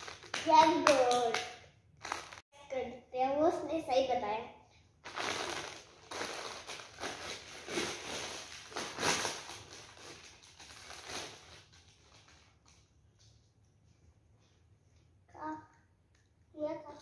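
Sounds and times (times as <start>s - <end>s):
crisp packet crinkling: 0.0s - 0.5s, 2.0s - 2.4s, 5.0s - 12.9s.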